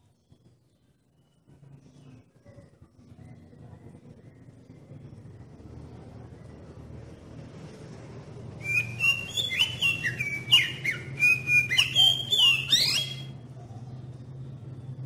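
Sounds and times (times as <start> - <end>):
bird singing whistled notes: 8.6 - 13.3.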